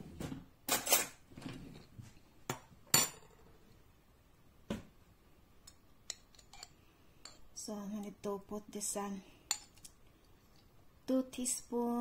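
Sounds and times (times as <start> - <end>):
kitchen utensils clinking: 0.7 - 1.2.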